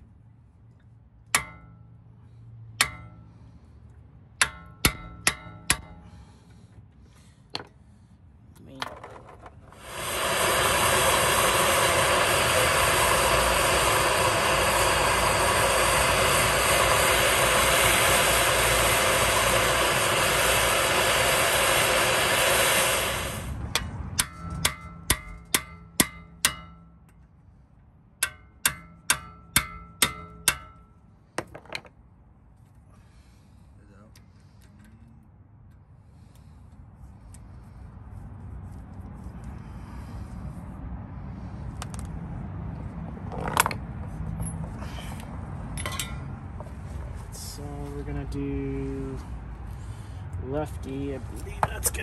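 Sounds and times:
gas torch hissing: 9.6 - 23.8.

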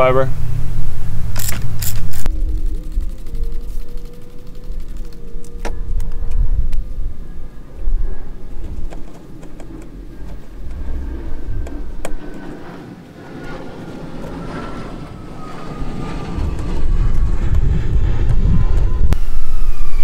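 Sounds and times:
distant engine rumble: 0.0 - 19.9
faint whine falling in pitch: 0.0 - 20.0.

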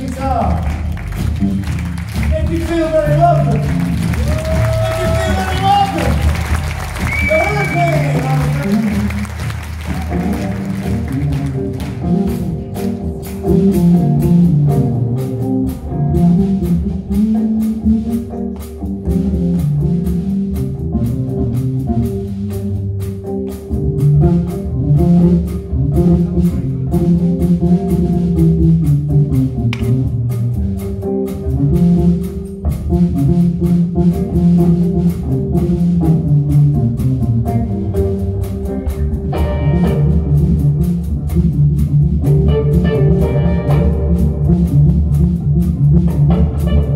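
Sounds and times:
bass guitar line: 0.0 - 46.9
held keyboard or guitar tone: 10.0 - 46.9.

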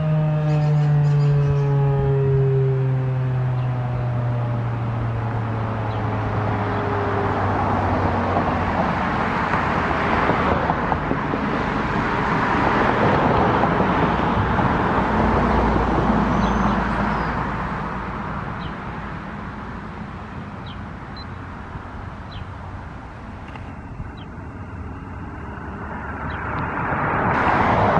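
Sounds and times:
mechanical siren winding down: 0.0 - 7.9
loud even rushing noise: 25.8 - 27.9.

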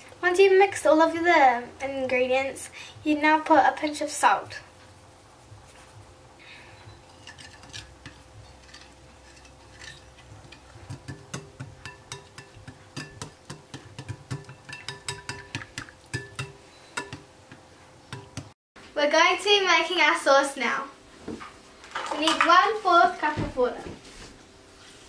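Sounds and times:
whisk clicking against glass bowl: 9.9 - 18.5.

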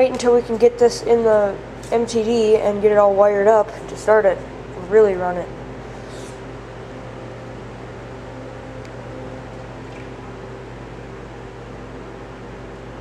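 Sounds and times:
machine hum with hiss: 5.4 - 13.0.

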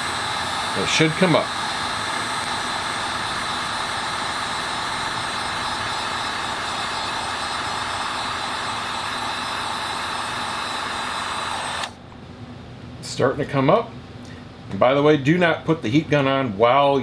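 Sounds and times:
heat gun blowing air: 0.0 - 12.0
faint hum: 0.0 - 17.0.

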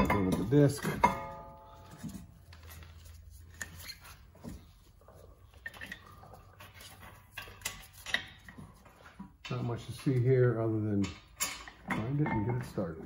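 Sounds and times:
metal clicks and light knocks: 9.2 - 12.8.

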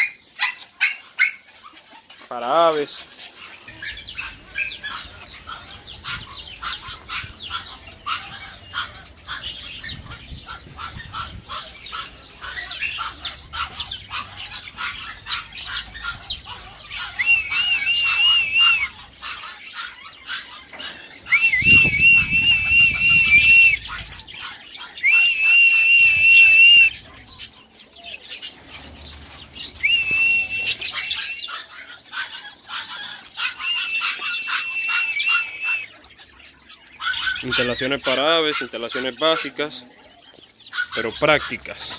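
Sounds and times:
aviary birds chirping and chattering: 0.0 - 41.9
loud wavering bird call: 6.2 - 20.2, 21.1 - 27.1, 29.8 - 36.0.

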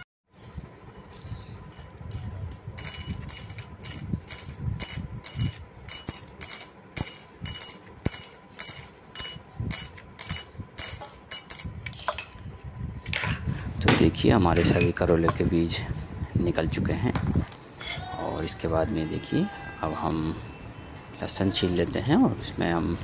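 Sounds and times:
bangles jingling: 1.0 - 11.7.

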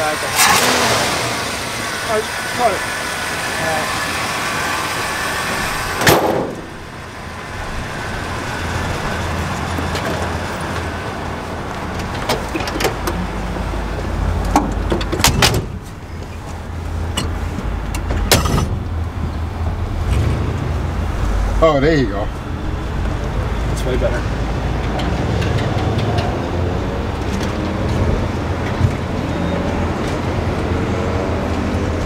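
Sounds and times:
car engine idling: 0.0 - 30.8
car doors opening and shutting: 5.6 - 6.9, 9.4 - 20.7
car hood slammed shut: 6.0 - 6.7, 18.2 - 18.8.

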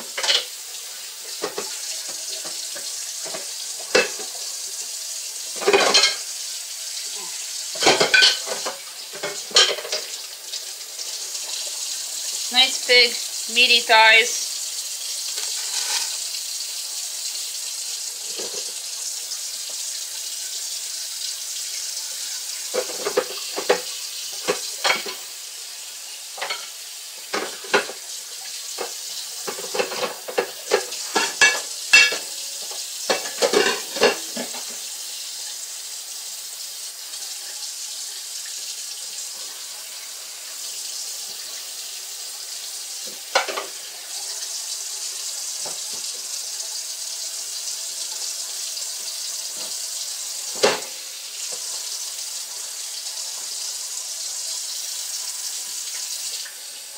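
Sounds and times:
tap water running into sink: 0.0 - 56.9
knocks and clatters in sink: 1.4 - 4.3, 5.6 - 6.2, 7.7 - 10.2, 22.7 - 25.2, 27.3 - 28.0, 28.8 - 32.3, 33.1 - 34.8.

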